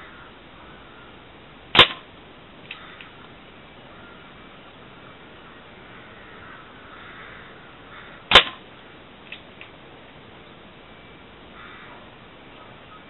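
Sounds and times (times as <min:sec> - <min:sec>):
air gun shot: 0:01.7 - 0:02.1, 0:08.3 - 0:08.7.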